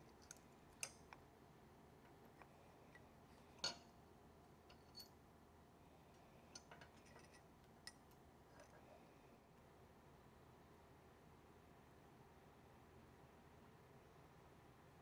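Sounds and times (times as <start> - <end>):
metal parts clicking and clinking: 3.6 - 3.9, 6.5 - 8.0.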